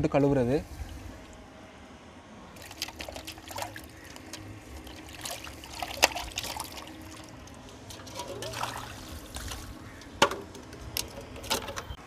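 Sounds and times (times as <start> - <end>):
water sloshing in metal bowl: 2.6 - 11.8.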